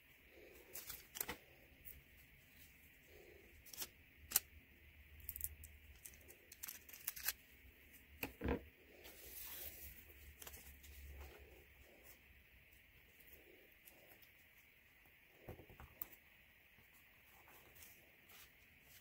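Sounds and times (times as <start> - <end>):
paper rustling: 0.4 - 1.6
scissors snipping paper: 5.3 - 7.4.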